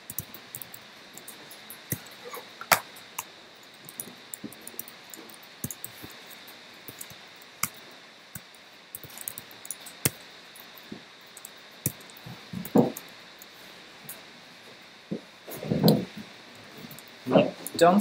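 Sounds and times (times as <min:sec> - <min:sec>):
laptop keyboard typing: 0:00.0 - 0:13.5.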